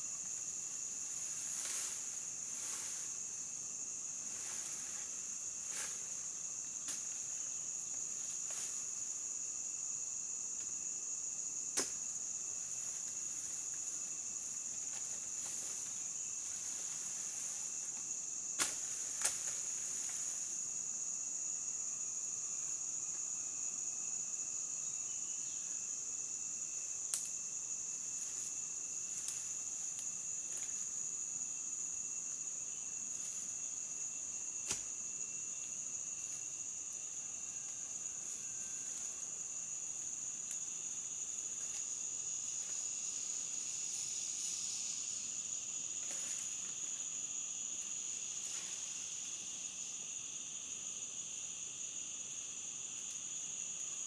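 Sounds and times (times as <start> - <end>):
crickets chirping: 0.0 - 54.0.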